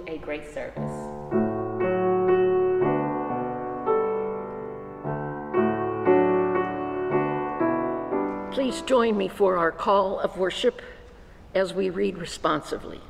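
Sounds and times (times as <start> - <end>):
piano playing slow chords: 0.8 - 9.5.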